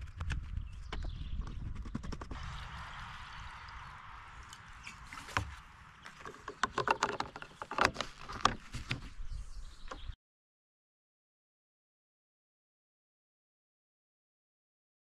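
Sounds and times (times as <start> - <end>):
plastic clicks and knocks: 5.2 - 9.1.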